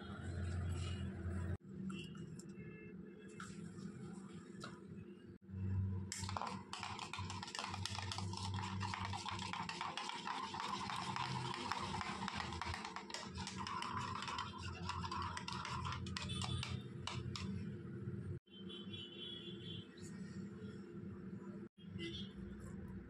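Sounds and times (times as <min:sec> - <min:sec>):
spoon scraping ceramic bowl: 0:06.2 - 0:17.6.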